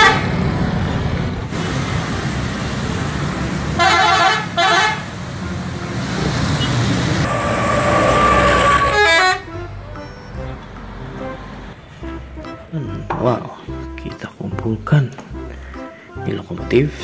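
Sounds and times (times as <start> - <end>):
bus horn blasts: 0.0 - 0.4, 3.8 - 6.0, 6.6 - 10.3
road traffic: 0.0 - 14.5.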